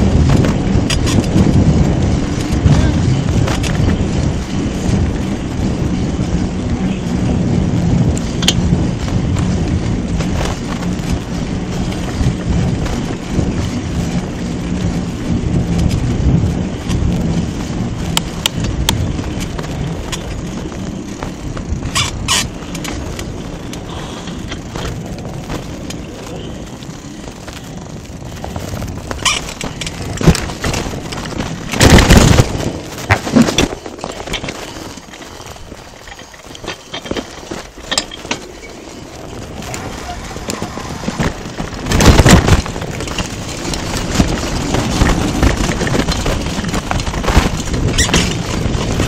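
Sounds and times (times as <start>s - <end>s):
bicycle rattling over bumps: 0.0s - 49.0s
wind rumbling on microphone: 0.0s - 49.0s.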